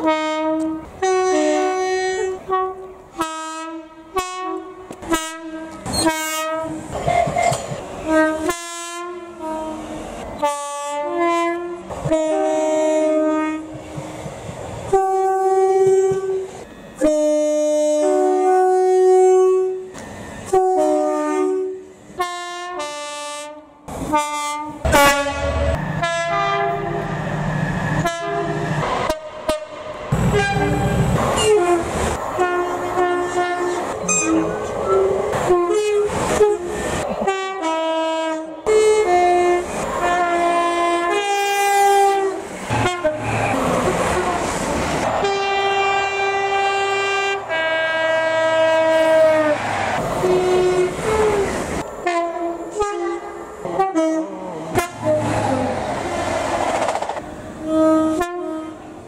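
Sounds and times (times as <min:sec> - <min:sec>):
two-tone train horn blasts: 0:00.0 - 0:14.0, 0:14.9 - 0:27.2, 0:28.0 - 0:44.5, 0:45.1 - 0:49.6, 0:50.2 - 0:55.3, 0:57.5 - 0:59.0
diesel locomotive engine rumble: 0:00.0 - 0:59.0.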